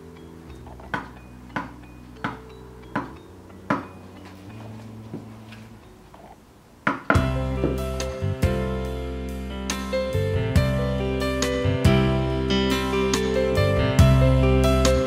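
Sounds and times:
soft background music: 0.0 - 15.0
chisel tapping wood: 0.8 - 4.0.

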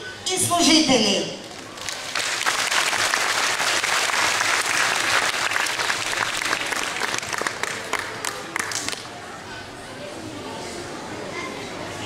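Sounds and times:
audience applauding: 1.6 - 9.0.

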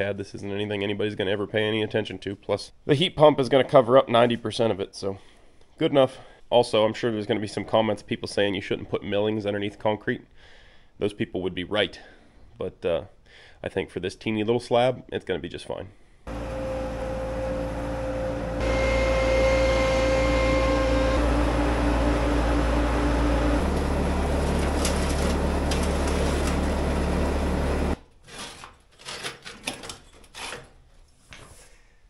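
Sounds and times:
diesel engine running: 16.3 - 28.0.

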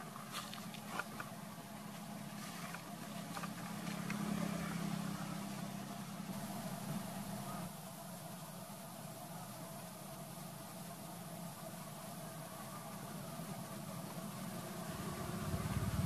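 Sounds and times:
engine humming: 0.0 - 7.7, 11.0 - 16.0.

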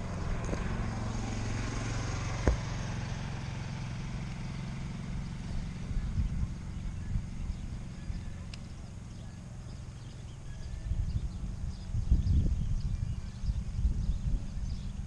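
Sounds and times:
motor engine running: 0.0 - 15.0.

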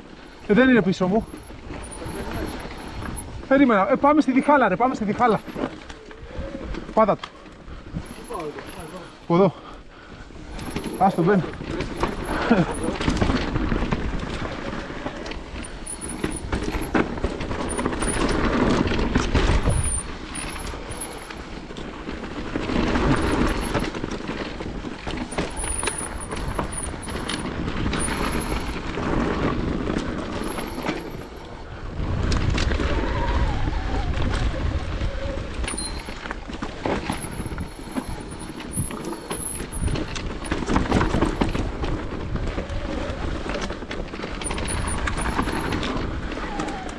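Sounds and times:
bike rattling clicks and knocks: 0.0 - 46.9
bike riding rushing noise: 0.0 - 46.9.

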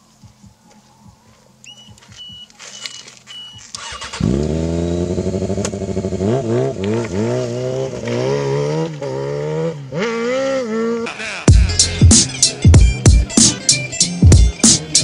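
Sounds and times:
motorcycle engine revving: 3.5 - 15.0.

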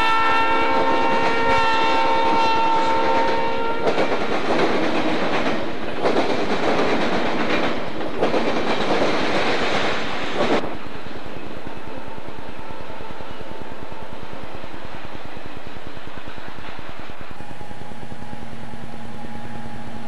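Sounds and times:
locomotive air horn: 0.0 - 4.0
freight cars rolling on rails: 0.0 - 20.0.

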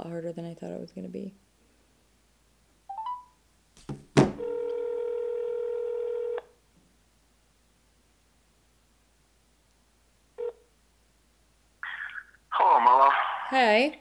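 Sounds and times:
phone ringback tone: 2.9 - 3.4, 4.4 - 6.4
phone knocking on table: 3.9 - 4.4.

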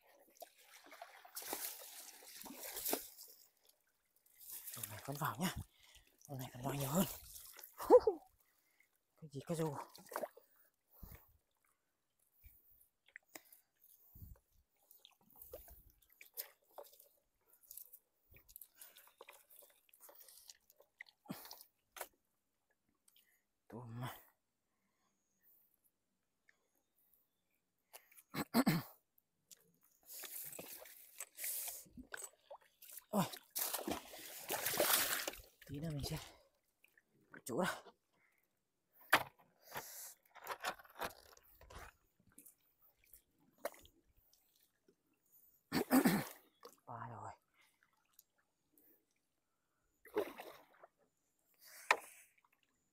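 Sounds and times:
water splash: 0.4 - 3.3, 33.2 - 35.5.

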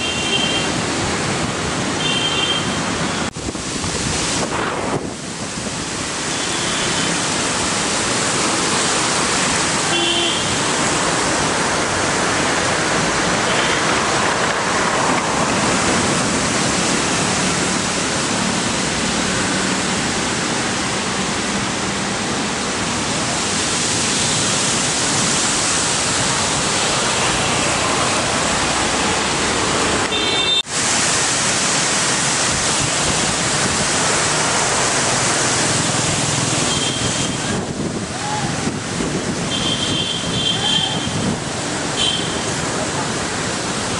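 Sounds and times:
wind rushing through foliage: 2.7 - 43.9
wind buffeting microphone: 37.2 - 39.5.

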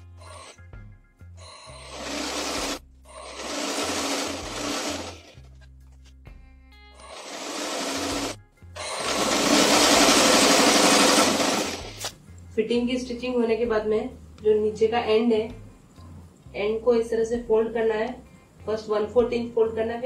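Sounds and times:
sewing machine stitching: 1.8 - 5.5, 7.0 - 12.1.

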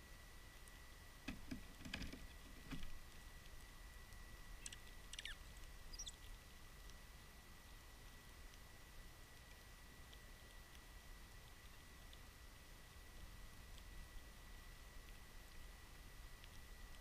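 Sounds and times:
birds pecking on wooden deck: 1.2 - 3.0
high thin bird chirps: 4.6 - 6.3.

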